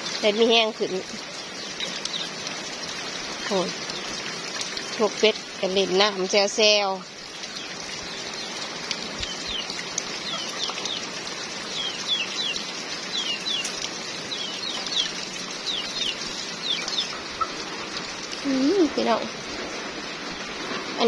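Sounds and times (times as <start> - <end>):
steady rain falling: 0.0 - 21.0
birds peeping: 1.3 - 2.4, 6.9 - 19.2.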